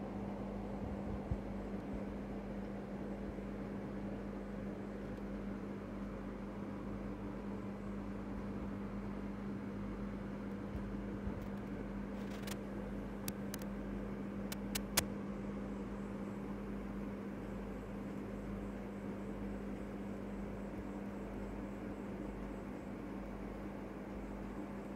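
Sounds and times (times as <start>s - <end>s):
small clicks: 11.4s - 12.6s, 13.2s - 13.8s, 14.5s - 15.1s.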